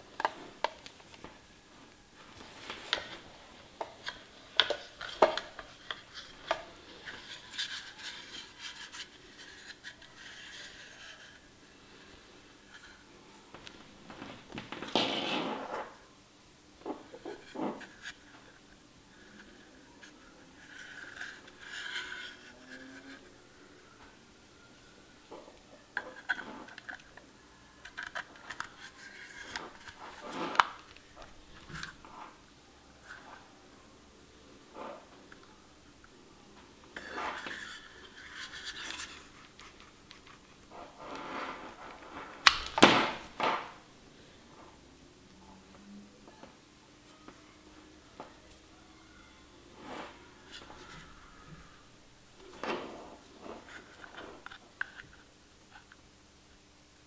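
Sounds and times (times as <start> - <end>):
cord rubbing and rustling: 2.2 - 11.5, 27.9 - 32.4, 36.9 - 42.5.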